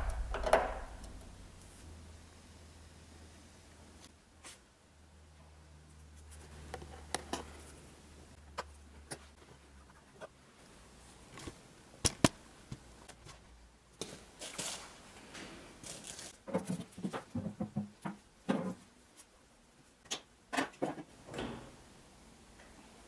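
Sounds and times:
metal parts clicking and knocking: 0.0 - 1.3.

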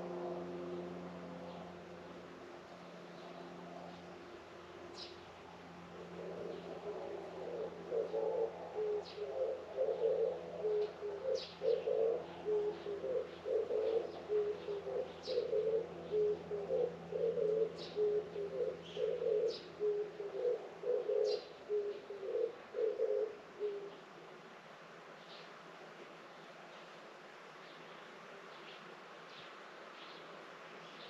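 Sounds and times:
dove cooing: 5.9 - 24.2
small birds chirping: 21.1 - 22.1.

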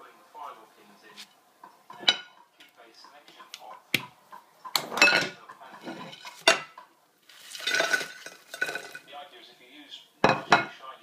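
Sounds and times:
crockery clinking: 1.6 - 2.7, 4.3 - 6.9, 7.6 - 9.1, 10.2 - 10.8
chips sliding onto a plate: 7.2 - 9.1.

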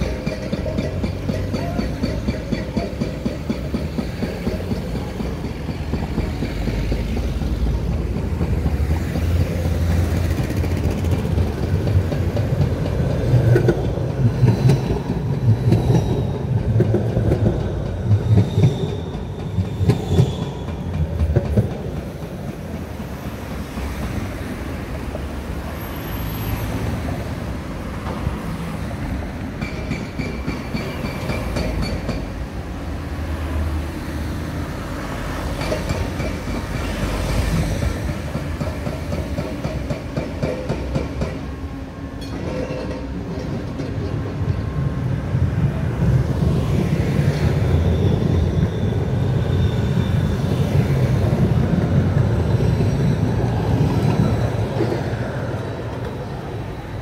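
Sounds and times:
cars passing: 0.0 - 42.2
tram rumbling past: 0.0 - 57.0
tram wheel squeal: 0.0 - 57.0.

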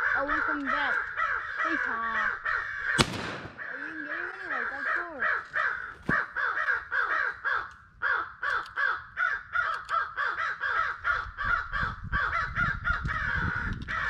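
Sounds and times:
crows cawing: 0.0 - 14.0.

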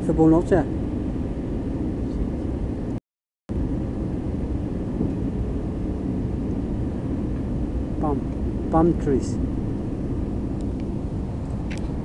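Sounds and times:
jet airliner cabin noise: 0.0 - 12.0.

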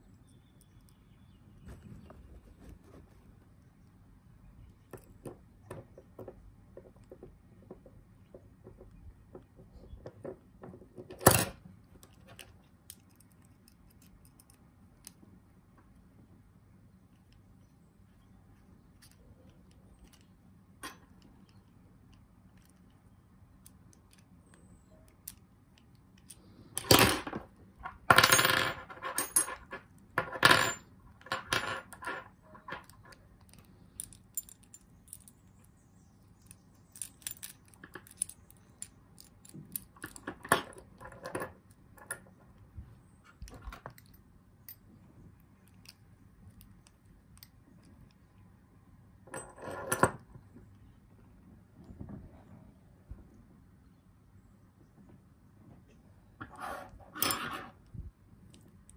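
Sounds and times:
padlock parts clicking and clattering: 0.0 - 1.8, 4.5 - 16.2, 16.9 - 48.4, 56.9 - 58.9.

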